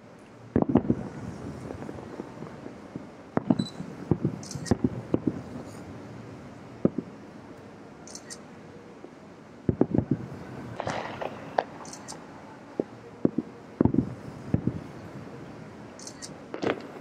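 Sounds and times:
distant fireworks booms: 0.5s - 6.1s, 6.7s - 7.2s, 9.0s - 12.0s, 12.7s - 17.0s.

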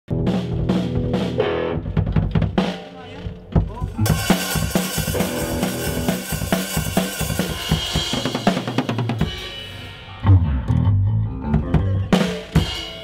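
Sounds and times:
drum hits: 0.1s - 10.9s
rock band playing: 0.1s - 13.0s.

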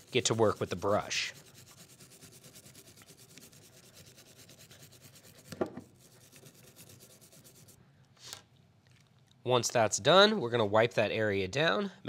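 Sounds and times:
brush scrubbing: 0.0s - 7.8s.

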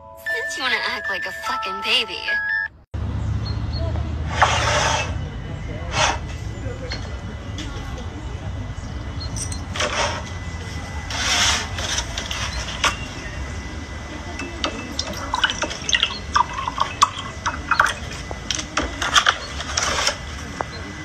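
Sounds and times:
scraping handling noises: 9.3s - 13.3s, 17.4s - 20.8s
milk glugging into a mug: 14.9s - 18.1s.

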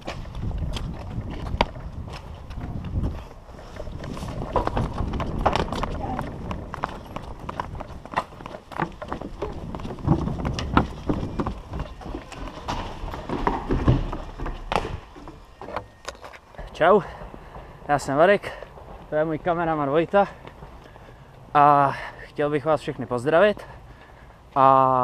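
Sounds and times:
wind rumble on microphone: 0.0s - 12.5s
running footsteps on pavement: 0.0s - 25.0s.

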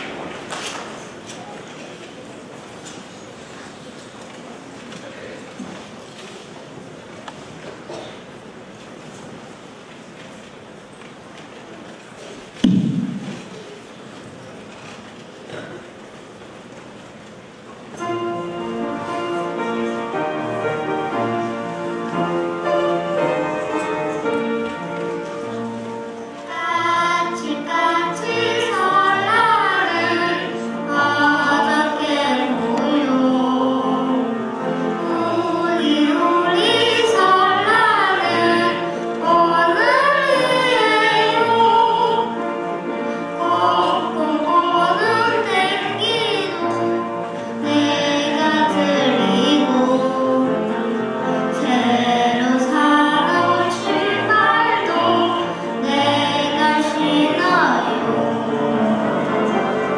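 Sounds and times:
instrumental accompaniment: 17.9s - 59.9s
girl and woman singing: 26.5s - 34.4s, 35.0s - 42.4s, 43.4s - 46.9s, 47.6s - 50.6s, 51.5s - 58.3s.

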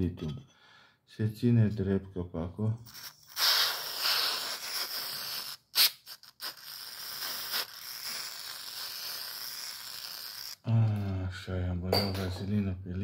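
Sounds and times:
aerosol can spraying hiss: 2.9s - 10.6s.

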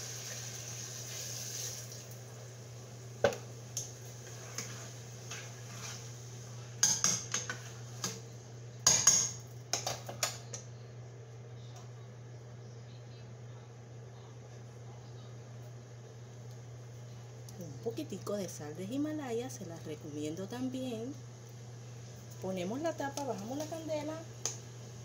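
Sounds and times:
water pouring into a pot: 0.0s - 2.2s.

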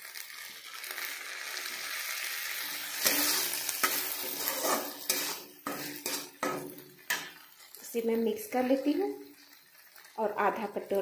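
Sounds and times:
vinegar sizzling in a wok: 0.0s - 11.0s
metal spatula scraping a pan: 2.5s - 7.8s.

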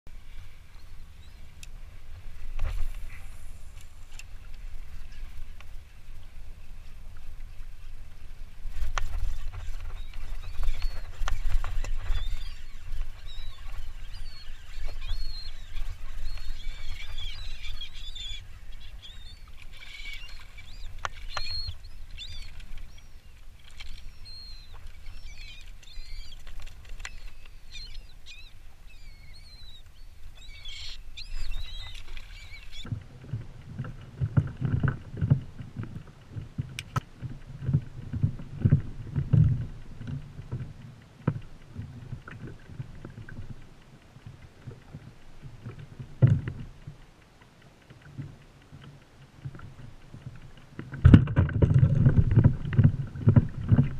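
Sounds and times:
water sloshing against kayak hull: 0.1s - 53.9s
wind rumble on microphone: 0.1s - 53.9s
seabirds calling: 0.2s - 32.9s.

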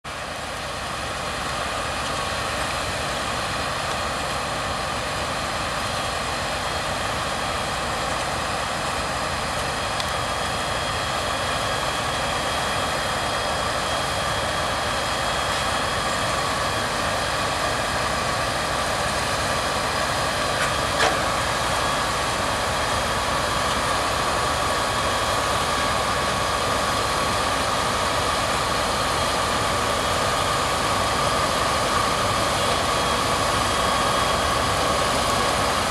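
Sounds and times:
tractor diesel engine under load: 0.0s - 35.9s
harvester machinery whine: 0.1s - 35.9s.

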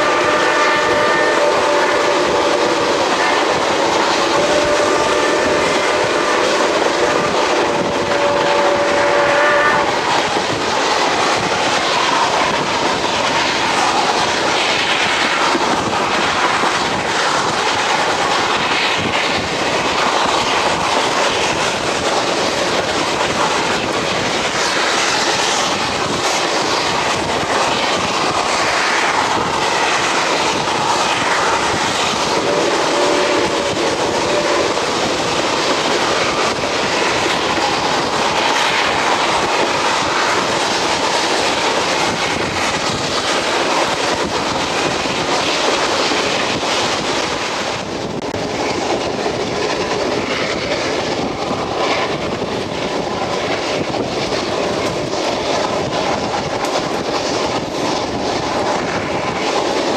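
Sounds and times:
steam locomotive whistle: 0.0s - 10.2s, 32.4s - 34.8s
train coaches rolling over rails: 0.0s - 59.9s.

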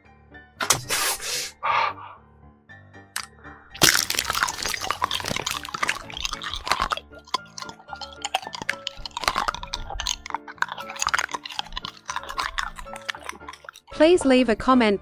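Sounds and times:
background music: 0.0s - 15.0s
crackling clicking sound effects: 3.2s - 13.9s.

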